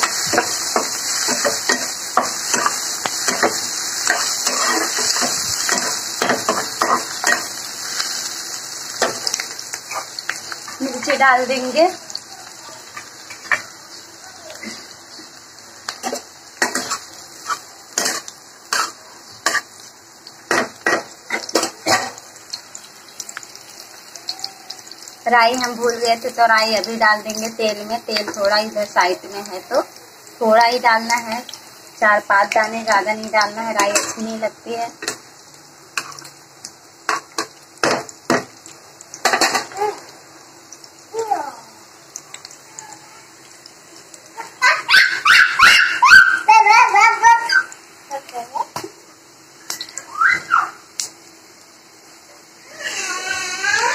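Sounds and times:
spatula scraping a pan: 0.0s - 7.5s, 16.0s - 19.8s
food sizzling in oil: 0.0s - 53.9s.

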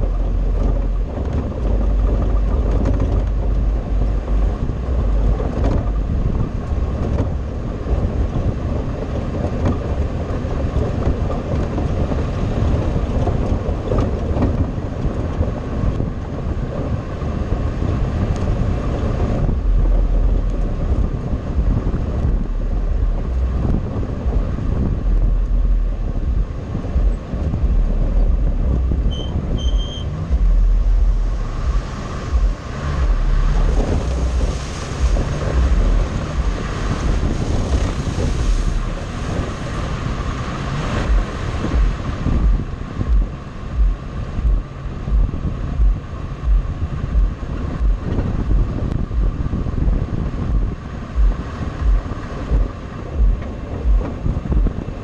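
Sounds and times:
off-road vehicle engine: 0.0s - 55.0s
wind buffeting microphone: 0.0s - 55.0s.

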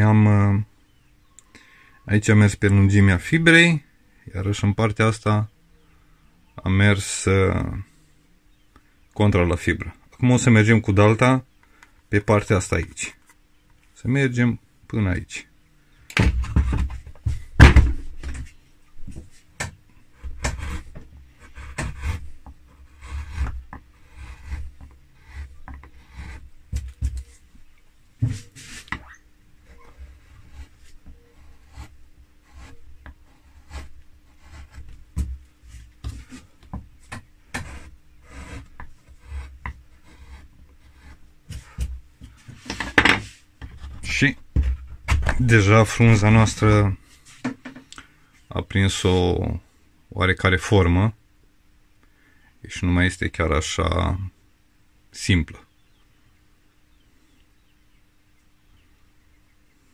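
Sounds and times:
chisel cutting into wood: 20.2s - 22.2s, 22.8s - 26.4s, 31.4s - 34.9s, 37.5s - 41.2s.

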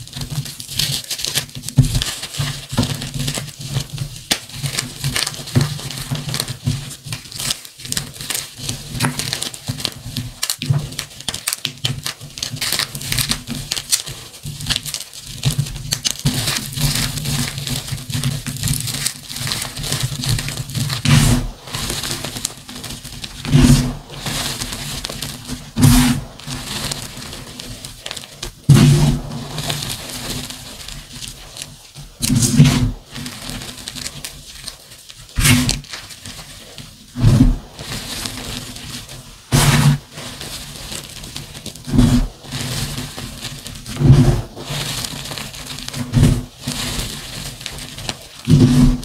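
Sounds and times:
chalk crunching and crumbling: 0.0s - 49.0s
thuds: 25.8s - 26.3s, 28.7s - 29.3s.

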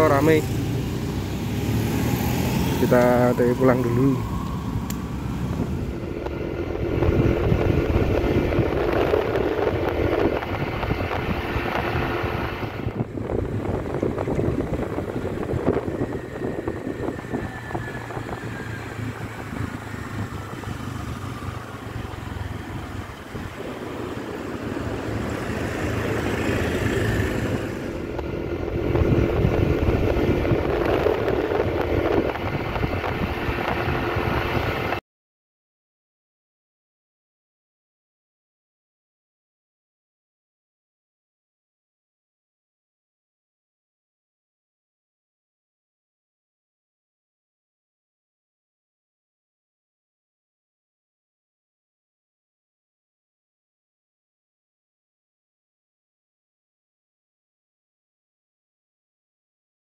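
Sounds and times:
motorcycle engine hum: 0.0s - 35.0s
wind rushing over microphone: 0.0s - 35.0s.

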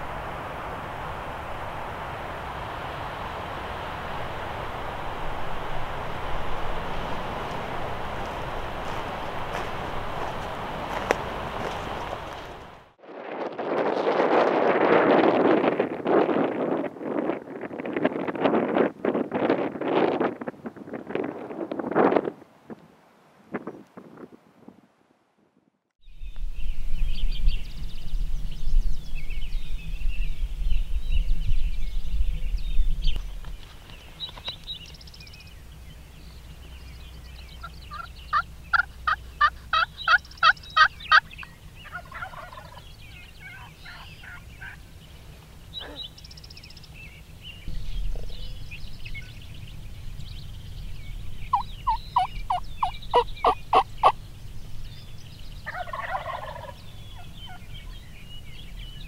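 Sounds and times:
small birds chirping: 26.0s - 59.0s
turkey gobbling: 37.6s - 44.8s, 51.5s - 54.2s, 55.6s - 57.7s.

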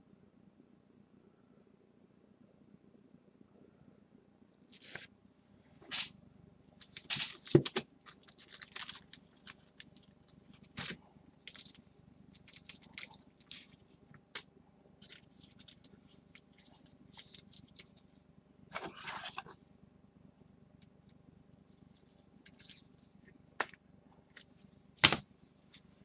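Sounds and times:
plastic card packaging crinkling: 6.8s - 14.4s, 15.0s - 18.0s.

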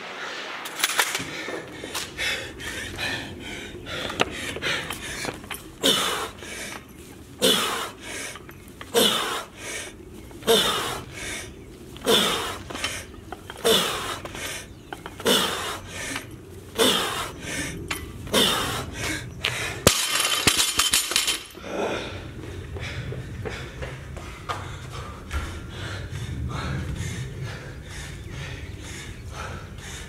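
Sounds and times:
heavy breathing: 0.0s - 20.0s, 20.9s - 30.0s
barbell dropped onto concrete: 19.9s - 21.6s.

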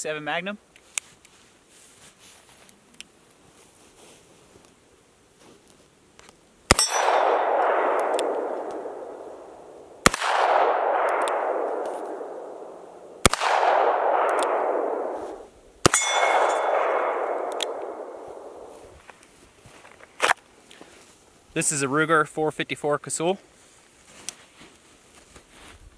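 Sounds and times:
revolver gunshots with ringing: 6.7s - 18.9s.

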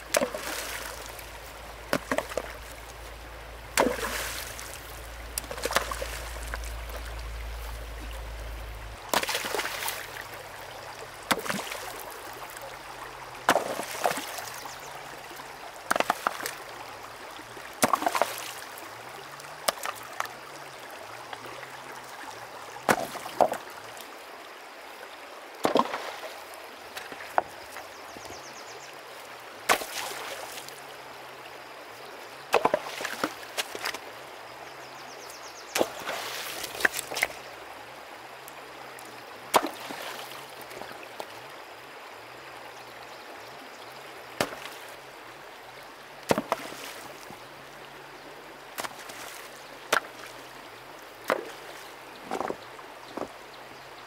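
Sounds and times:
stones clacking together: 0.0s - 2.9s, 11.3s - 12.0s, 15.9s - 16.6s, 48.8s - 50.3s, 51.2s - 53.4s
short splashes: 0.0s - 3.0s, 3.6s - 10.3s, 11.2s - 12.6s, 13.5s - 14.7s, 29.7s - 30.8s, 35.7s - 37.4s, 39.5s - 40.4s, 46.3s - 47.3s, 48.8s - 50.4s
running water rushing: 0.0s - 54.0s.

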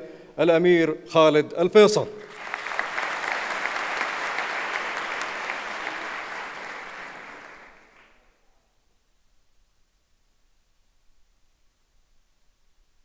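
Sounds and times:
audience applauding: 2.2s - 8.3s.

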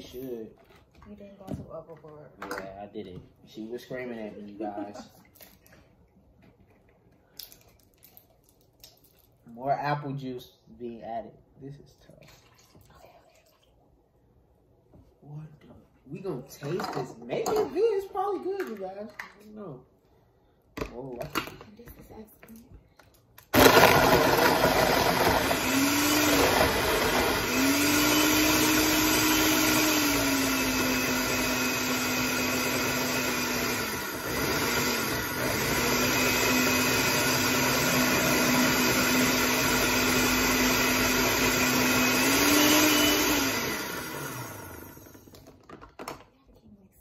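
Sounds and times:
blender motor blending ice: 23.5s - 45.6s.

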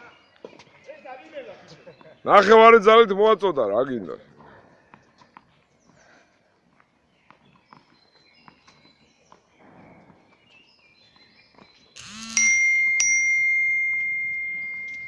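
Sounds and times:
bright metallic ring: 12.0s - 15.0s.

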